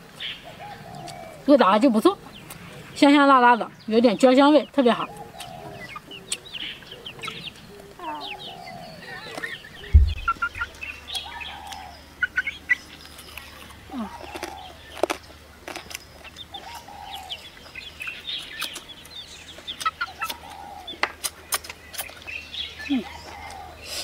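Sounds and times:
small birds chirping: 0.1s - 24.0s
chickens clucking: 0.5s - 13.0s, 13.6s - 24.0s
chewing and gnawing on rib: 13.0s - 16.9s
mouth clicks and smacks: 18.4s - 18.9s, 21.1s - 22.3s.

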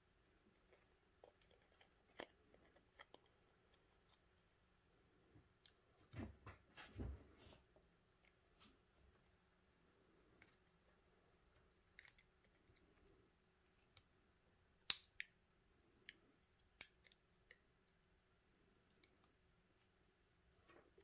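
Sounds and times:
light clicks of small parts: 11.4s - 14.2s, 16.0s - 20.0s.

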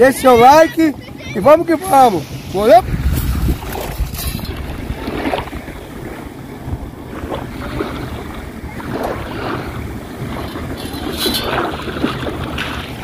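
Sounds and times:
wind on microphone: 0.0s - 13.0s
water splashing around feet: 2.9s - 6.3s, 7.0s - 13.0s.

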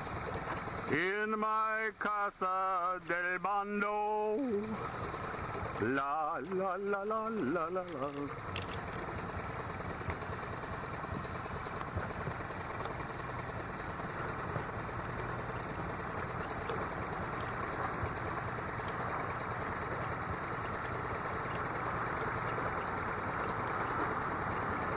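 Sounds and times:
constant rushing noise: 0.0s - 1.0s, 4.4s - 24.9s
boat engine running: 0.0s - 24.9s.

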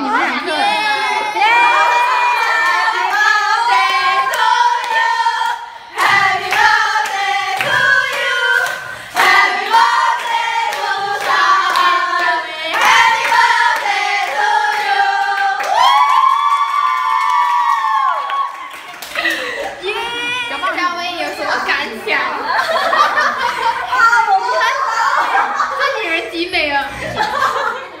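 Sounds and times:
women singing together: 1.3s - 16.0s.

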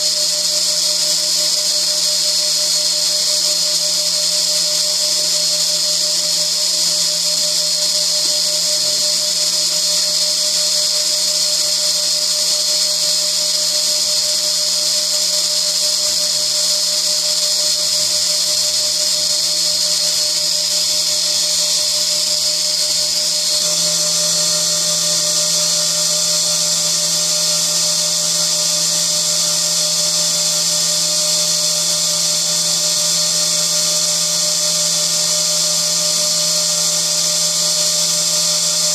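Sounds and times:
high-pitched spindle whine: 0.0s - 38.9s.

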